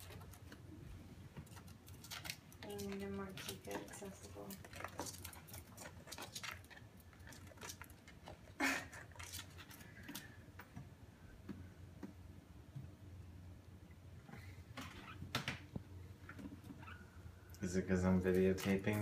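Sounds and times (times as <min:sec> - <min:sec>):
bird nibbling clicks and scratches: 0:01.4 - 0:10.4.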